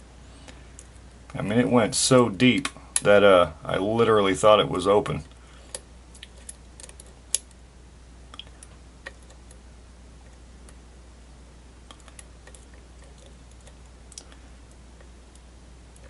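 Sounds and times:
lock pick clicking and scraping: 5.7s - 7.5s.

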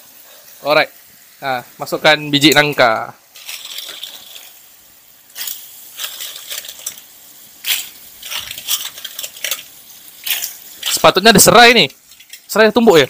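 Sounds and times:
clam shells clattering in a wok: 3.4s - 4.6s, 5.4s - 11.1s, 11.9s - 12.5s.

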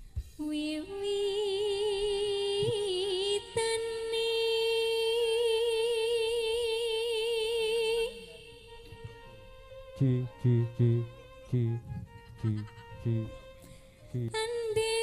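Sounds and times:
woman singing solo with vibrato: 0.5s - 8.8s.

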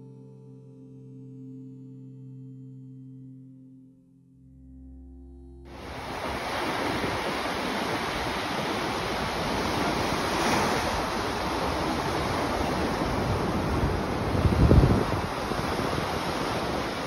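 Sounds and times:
waves washing up a sandy beach: 5.7s - 17.0s
wind buffeting microphone: 5.8s - 17.0s.

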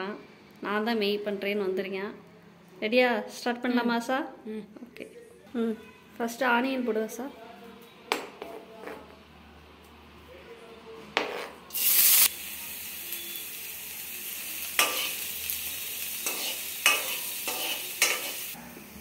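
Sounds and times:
onion sizzling in hot oil: 11.7s - 18.6s
steel ladle scraping pan: 16.2s - 18.6s.

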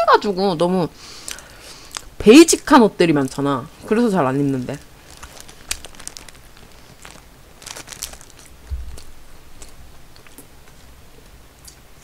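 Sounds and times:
paper wrapper crackling: 3.2s - 10.4s
chewing and mouth clicks: 8.2s - 10.8s.

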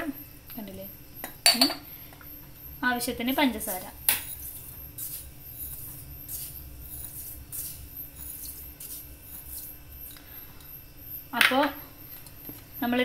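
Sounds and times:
sugar pouring into metal jar: 4.2s - 9.8s.

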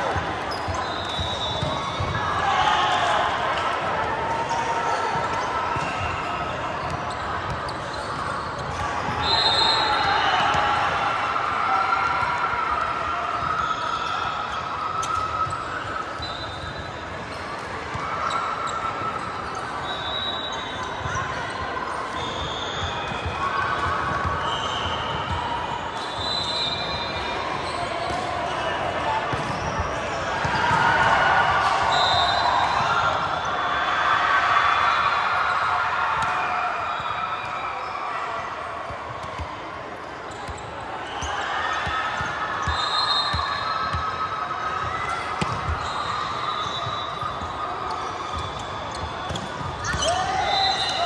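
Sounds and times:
sneakers squeaking on floor: 0.0s - 2.4s, 4.5s - 10.5s, 13.5s - 31.2s, 40.0s - 51.0s.

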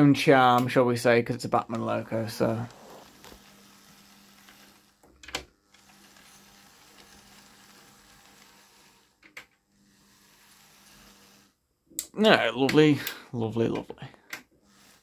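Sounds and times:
model train motor humming: 2.4s - 5.0s, 5.7s - 11.6s, 14.6s - 15.0s.

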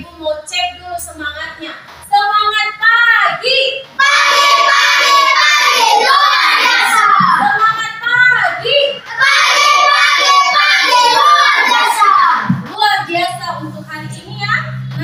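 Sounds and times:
children singing in unison: 4.0s - 7.4s, 9.1s - 12.5s.

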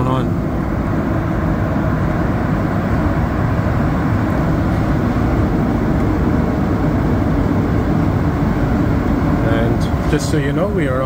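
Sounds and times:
metro train rumbling in tunnel: 0.0s - 11.0s.

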